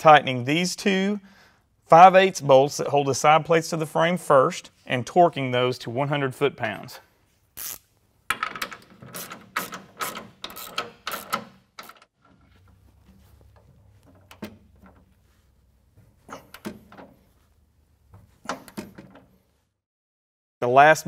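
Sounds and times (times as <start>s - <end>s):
ratcheting torque wrench clicking: 7.6s - 12.1s.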